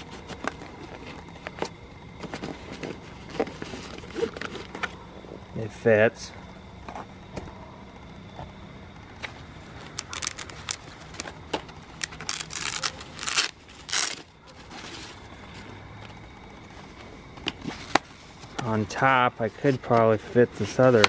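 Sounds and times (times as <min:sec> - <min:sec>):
fabric bag rustling and scraping: 0:00.0 - 0:05.0.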